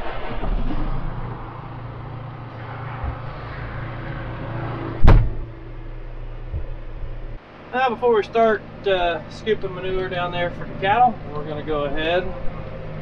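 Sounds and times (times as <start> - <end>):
loud knock: 5.0 - 5.5.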